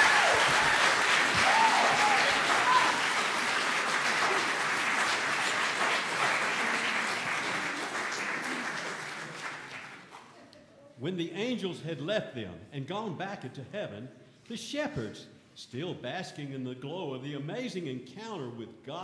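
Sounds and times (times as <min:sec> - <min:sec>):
congregation applauding: 0:00.0 - 0:10.3.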